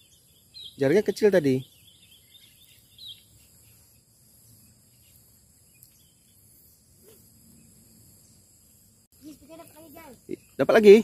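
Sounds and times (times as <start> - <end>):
crickets chirring: 0.0 - 11.0.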